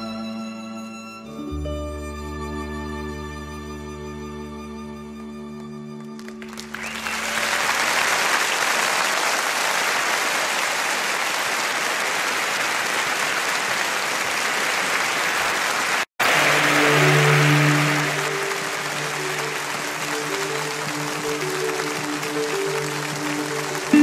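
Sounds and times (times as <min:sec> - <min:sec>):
music with held notes: 0:00.0 - 0:07.3, 0:16.3 - 0:24.0
crowd applause: 0:06.0 - 0:24.0.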